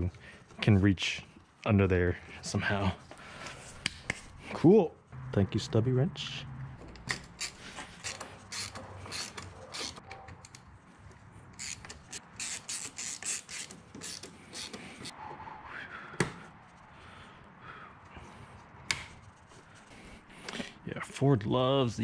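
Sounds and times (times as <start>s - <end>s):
ratcheting wrench clicking: 6.9s - 10.6s, 11.6s - 14.8s.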